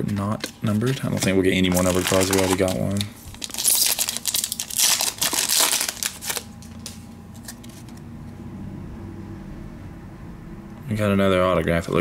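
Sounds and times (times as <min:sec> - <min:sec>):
cards being handled: 0:00.0 - 0:08.0
faint low hum: 0:00.0 - 0:12.0
wrapper crinkling: 0:00.4 - 0:07.6.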